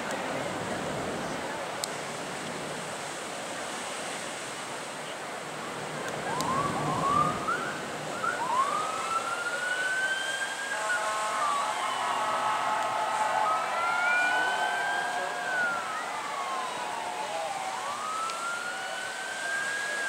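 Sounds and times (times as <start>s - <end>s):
surf washing: 0.0s - 20.0s
siren whooping and wailing: 6.3s - 20.0s
multi-tone horn blast: 10.7s - 15.5s.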